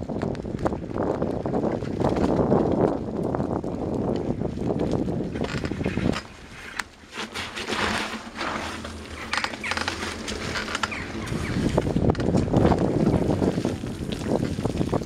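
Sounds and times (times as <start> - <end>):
bicycle crunching through snow: 0.0 - 15.0
wind buffeting microphone: 0.0 - 15.0
bike squeaking: 5.4 - 13.6.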